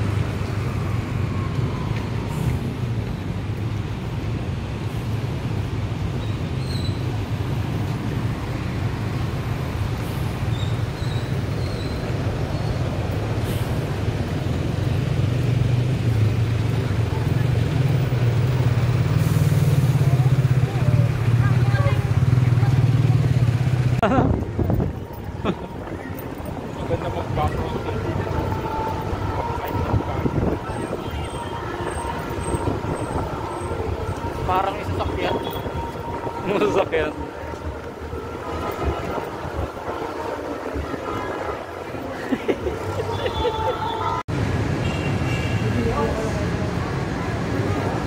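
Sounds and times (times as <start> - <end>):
traffic rumble on wet roads: 0.0 - 48.0.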